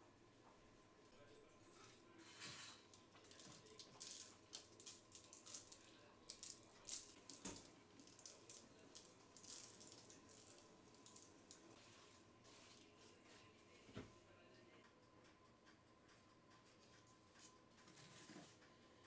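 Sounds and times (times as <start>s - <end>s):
patter of falling sugar grains: 2.2s - 13.0s.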